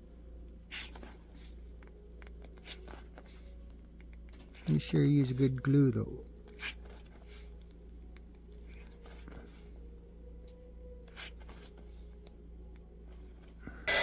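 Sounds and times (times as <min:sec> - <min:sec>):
low steady hum: 0:00.0 - 0:14.0
rubber tyre squeaks: 0:00.7 - 0:01.2, 0:02.6 - 0:03.0, 0:06.6 - 0:06.8, 0:08.6 - 0:09.0.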